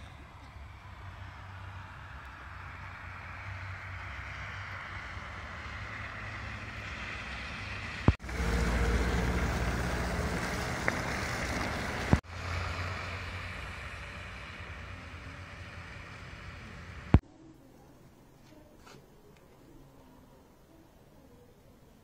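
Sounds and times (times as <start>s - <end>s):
vehicle rumble: 0.0s - 17.4s.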